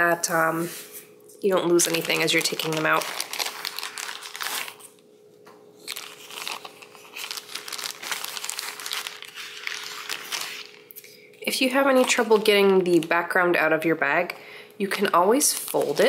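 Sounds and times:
plastic bag crinkling: 1.4 - 5.1, 5.8 - 13.3, 15.1 - 16.0.

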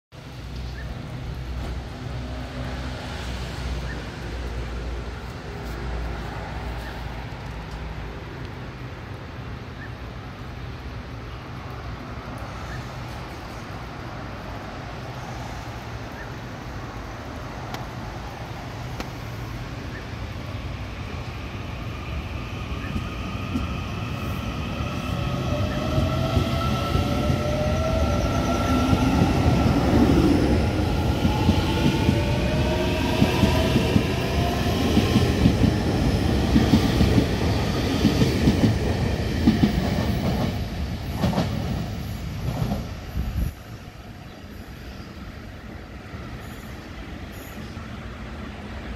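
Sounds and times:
electric train humming: 16.7 - 48.9.

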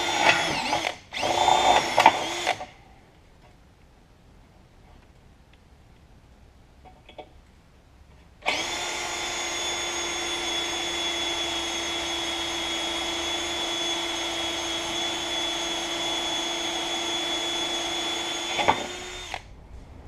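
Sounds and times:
cordless drill whining: 0.0 - 2.8, 8.5 - 19.5.

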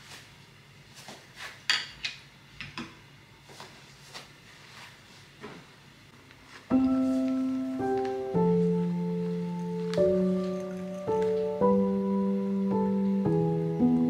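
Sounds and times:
music with mallet notes: 6.7 - 14.0.

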